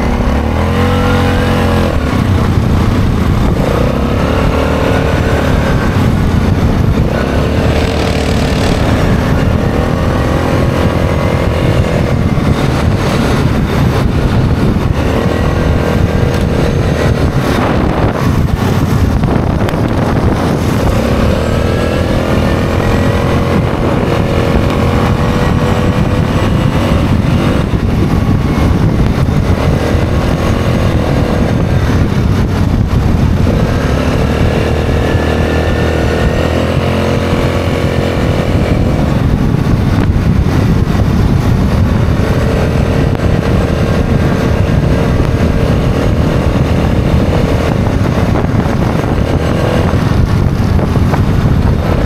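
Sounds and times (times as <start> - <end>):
atv engine revving: 0.0 - 52.0
low rumble: 0.0 - 52.0.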